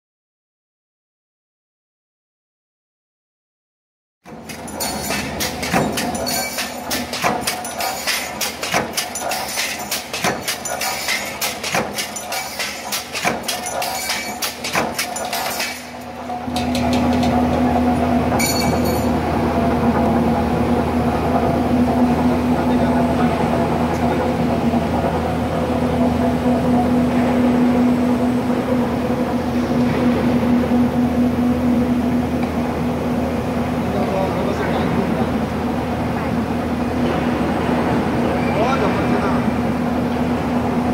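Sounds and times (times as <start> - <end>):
workshop machinery humming: 4.2 - 40.9
punch press heavy clank: 4.3 - 17.4
air feeder clacks: 4.4 - 17.7.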